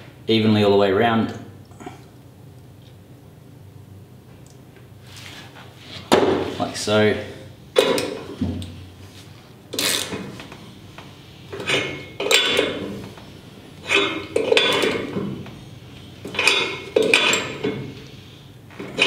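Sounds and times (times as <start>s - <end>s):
metal tools clinking and scraping: 11.5s - 13.0s, 13.8s - 15.3s, 16.2s - 17.9s.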